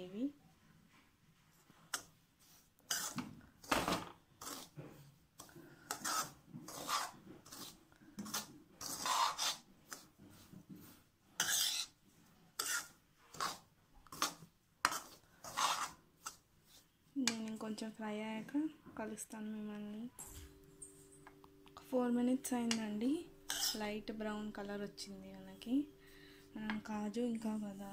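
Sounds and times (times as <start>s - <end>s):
metal spatula scraping a pan: 2.9s - 4.8s, 5.4s - 10.6s, 11.4s - 17.4s, 22.7s - 24.0s.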